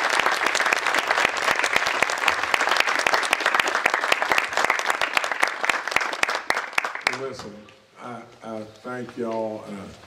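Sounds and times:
audience clapping: 0.0s - 7.4s.

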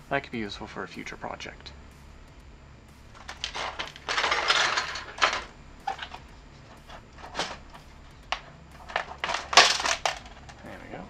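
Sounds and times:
rattle: 3.1s - 10.8s
parts clattering on sheet metal: 3.2s - 6.2s, 6.9s - 10.6s.

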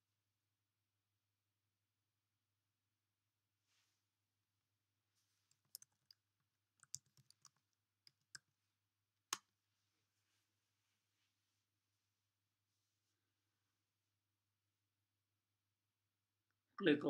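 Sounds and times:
typing on computer keyboard: 5.5s - 6.2s, 6.8s - 8.4s.

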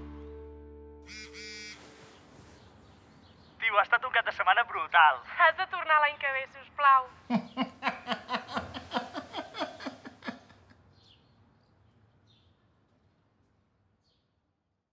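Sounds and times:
person laughing: 7.3s - 10.8s.

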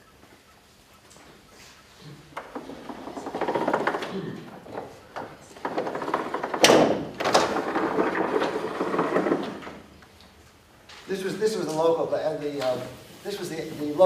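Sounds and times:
sharp knocks: 5.7s - 9.7s.

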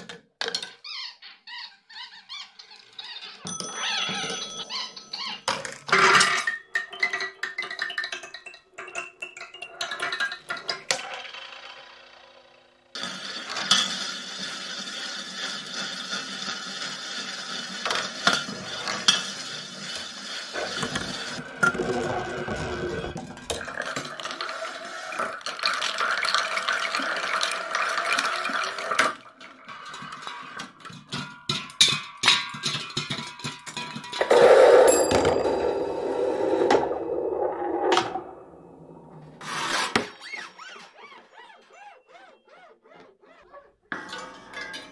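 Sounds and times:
marbles clattering on cans: 3.5s - 12.0s.

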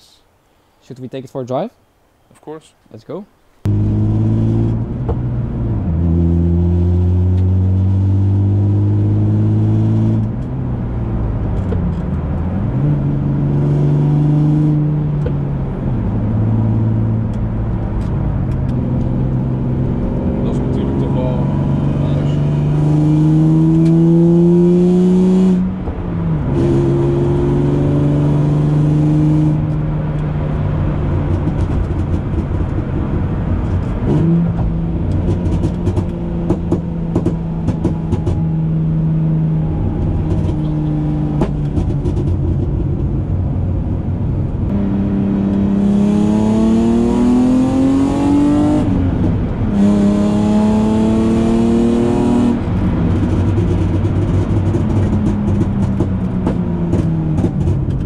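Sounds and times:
car engine revving: 3.6s - 58.0s
exhaust crackling pops: 4.7s - 5.4s, 11.4s - 13.7s, 29.5s - 38.6s, 39.8s - 43.6s, 52.6s - 58.0s.

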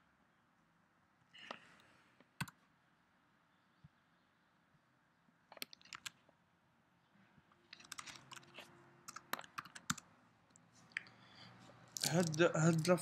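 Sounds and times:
typing on computer keyboard: 5.5s - 6.2s, 7.8s - 10.0s.

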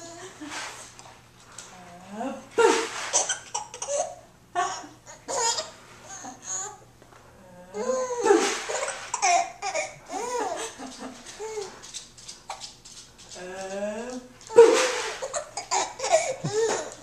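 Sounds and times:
baby laughing and babbling: 3.2s - 6.8s, 7.8s - 10.6s, 14.6s - 17.0s.

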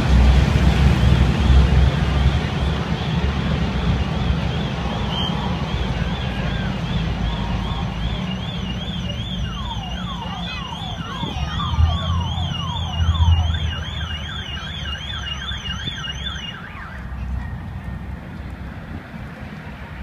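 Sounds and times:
low engine rumble: 0.0s - 20.0s
lower slower warbling siren: 0.8s - 18.2s
high fast warbling siren: 1.0s - 17.4s
falling siren yelps: 3.8s - 17.7s.

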